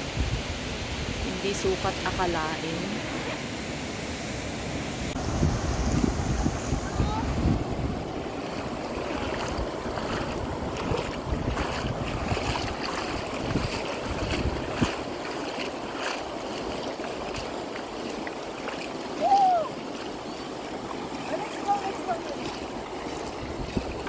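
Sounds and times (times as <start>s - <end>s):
waves washing: 0.0s - 24.0s
wind buffeting microphone: 5.1s - 18.3s, 19.0s - 24.0s.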